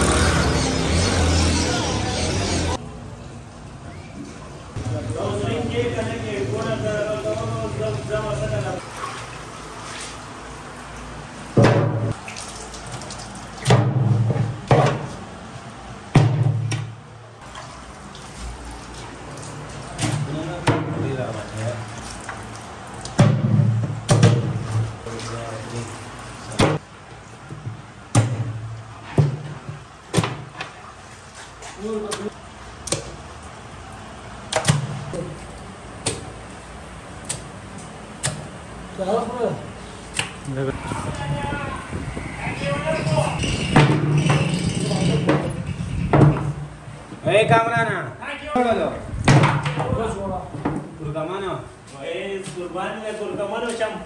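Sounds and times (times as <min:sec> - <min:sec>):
sharp knocks: 0:11.6 - 0:12.2
water splashing in a metal pot: 0:12.1 - 0:14.0, 0:17.4 - 0:20.3, 0:21.1 - 0:23.4.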